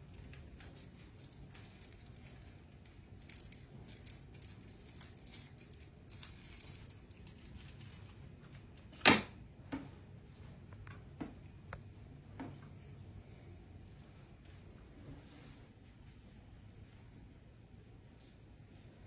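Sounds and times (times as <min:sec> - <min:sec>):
hands rustling light strip: 0:00.0 - 0:09.0.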